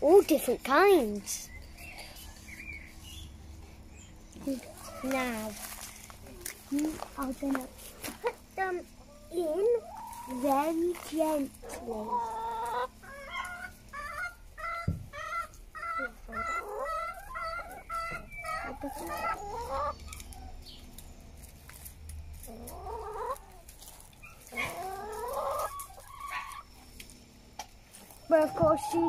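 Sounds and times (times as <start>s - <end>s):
hen clucking: 1.7s - 29.0s
hen drawn-out calls: 11.6s - 20.6s, 22.5s - 26.8s.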